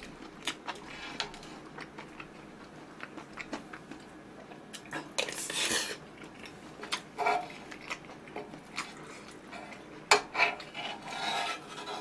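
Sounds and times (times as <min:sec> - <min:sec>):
spoon scraping a pan: 0:07.2 - 0:07.6, 0:09.5 - 0:12.0.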